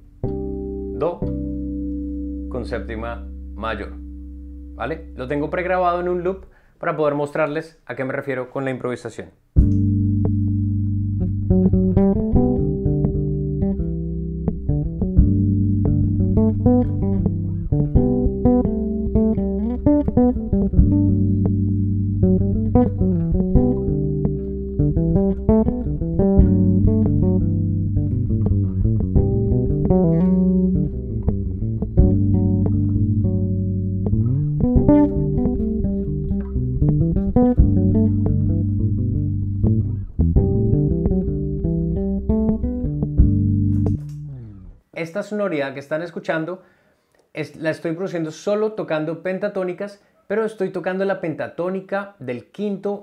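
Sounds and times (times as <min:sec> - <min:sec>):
electric bass plucked melody: 0:00.0 - 0:06.6, 0:09.6 - 0:44.8
looped sustained chords: 0:00.2 - 0:06.3.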